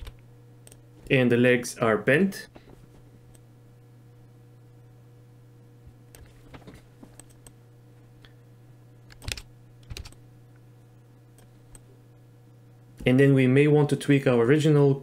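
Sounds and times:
faint low hum: 0.0s - 15.0s
keyboard and mouse clicks: 6.1s - 7.6s, 9.1s - 10.2s.

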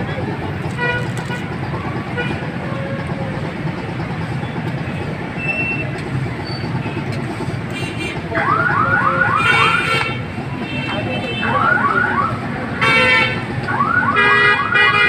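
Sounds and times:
street traffic rumble: 0.0s - 15.0s
vehicle siren whooping: 8.2s - 10.0s, 11.5s - 12.7s, 13.6s - 15.0s.

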